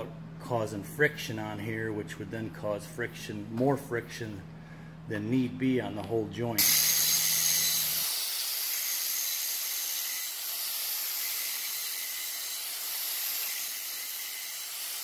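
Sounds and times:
angle grinder grinding steel: 0:06.6 - 0:15.0.

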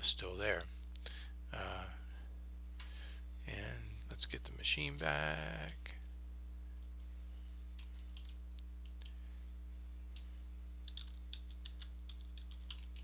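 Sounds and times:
steady low hum: 0:00.0 - 0:13.0
keyboard keys tapping: 0:10.2 - 0:13.0.

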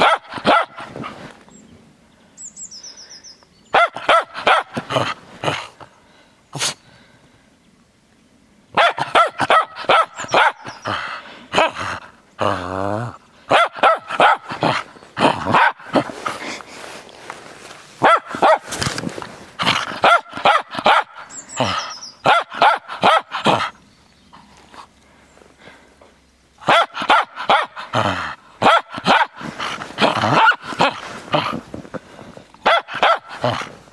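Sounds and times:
dog barking: 0:00.0 - 0:00.9, 0:03.7 - 0:04.8, 0:08.8 - 0:10.8, 0:13.5 - 0:14.8, 0:15.4 - 0:16.1, 0:18.0 - 0:18.7, 0:19.9 - 0:21.3, 0:22.2 - 0:23.7, 0:26.6 - 0:27.9, 0:28.6 - 0:29.4, 0:30.0 - 0:31.0, 0:32.6 - 0:33.7.

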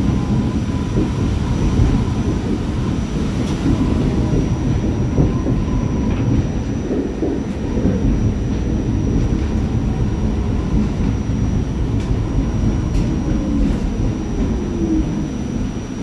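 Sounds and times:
wheels rumbling on rail: 0:00.0 - 0:16.0.

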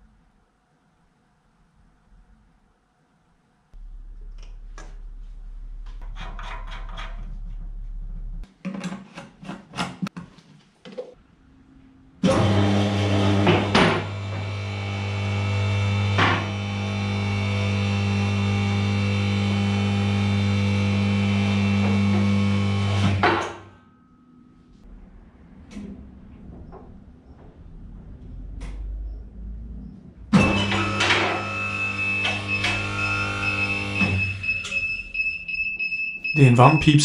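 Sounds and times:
electric motor and hydraulic pump humming: 0:12.2 - 0:23.3, 0:30.3 - 0:34.8.

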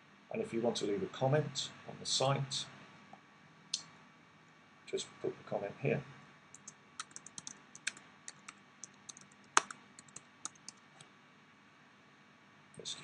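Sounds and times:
typing on computer keyboard: 0:06.6 - 0:10.8.

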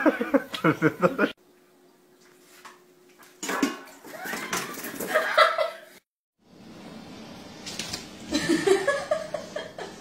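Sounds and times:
person laughing: 0:00.0 - 0:01.4, 0:08.3 - 0:10.0.

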